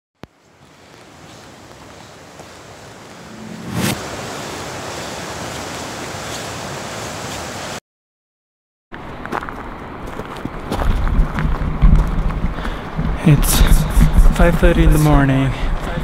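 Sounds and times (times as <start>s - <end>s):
steady rushing outdoor noise: 0.2s - 7.8s, 9.0s - 16.0s
rougher rushing noise: 3.0s - 5.4s.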